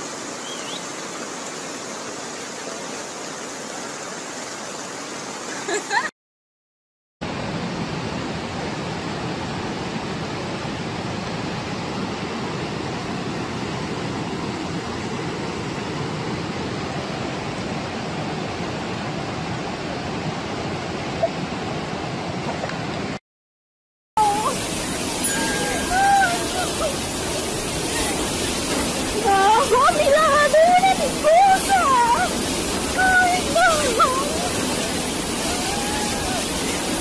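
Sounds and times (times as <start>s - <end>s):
floodwater rushing: 0.0s - 6.1s, 24.2s - 37.0s.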